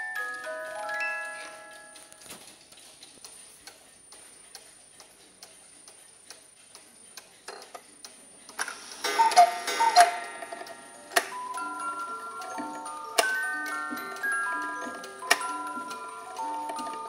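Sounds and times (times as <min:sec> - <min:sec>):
clock hands clicking: 0:00.0 - 0:17.0
clock ticking: 0:00.0 - 0:17.0
cuckoo clock calls: 0:08.4 - 0:17.0
striking mechanism clatter: 0:08.5 - 0:11.5.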